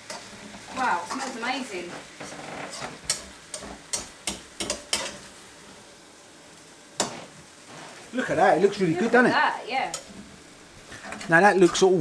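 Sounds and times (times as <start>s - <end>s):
spatula knocking and scraping wok: 0.0s - 5.4s, 7.0s - 8.0s, 9.0s - 11.8s
faint sizzle from hot pan: 0.0s - 12.0s.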